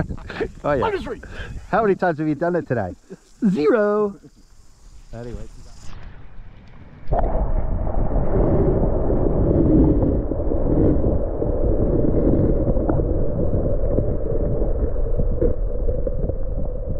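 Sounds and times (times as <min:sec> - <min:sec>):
muffled underwater river rushing: 0:05.5 - 0:16.9.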